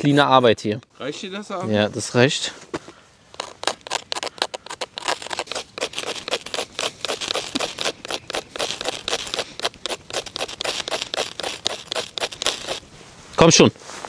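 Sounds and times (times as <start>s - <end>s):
ferro rod scraping strokes: 3.3s - 13.2s.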